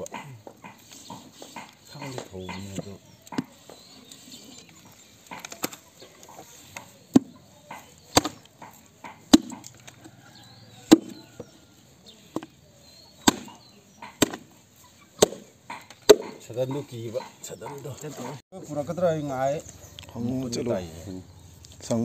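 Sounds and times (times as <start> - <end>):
machete chopping meat: 8.1 - 8.4, 9.1 - 9.6, 10.9 - 11.2, 13.2 - 13.6, 14.2 - 14.5, 15.2 - 16.4.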